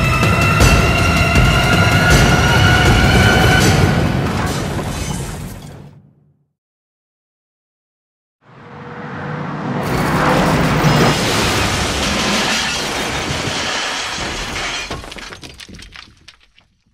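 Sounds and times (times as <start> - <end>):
crash and blast noise: 0.0 - 5.8, 9.8 - 16.3.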